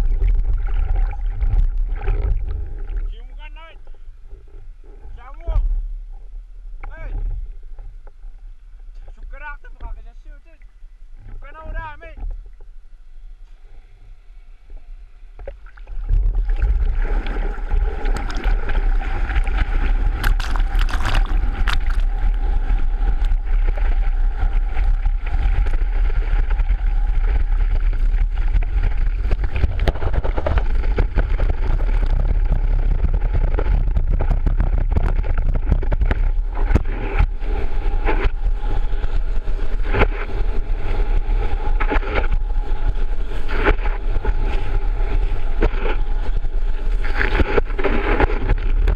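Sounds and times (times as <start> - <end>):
water rushing and splashing: 0.0 - 3.6, 15.4 - 42.8.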